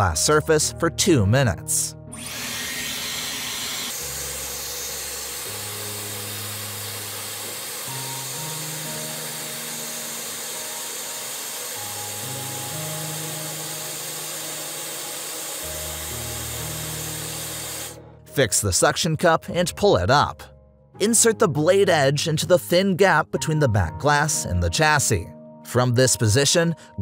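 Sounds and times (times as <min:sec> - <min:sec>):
slow low background music: 0:00.0 - 0:27.0
hair dryer blowing: 0:02.1 - 0:18.0.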